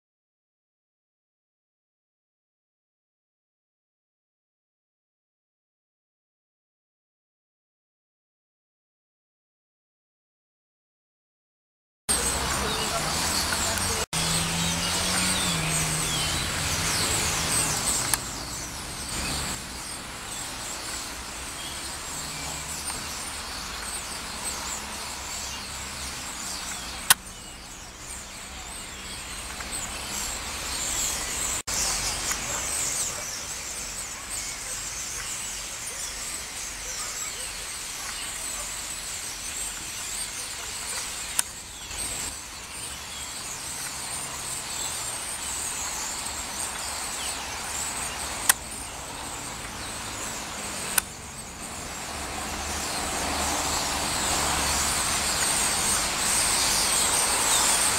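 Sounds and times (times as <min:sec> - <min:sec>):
low traffic rumble: 0:12.1 - 0:35.7, 0:38.6 - 0:57.9
starling flock chattering: 0:12.1 - 0:57.9.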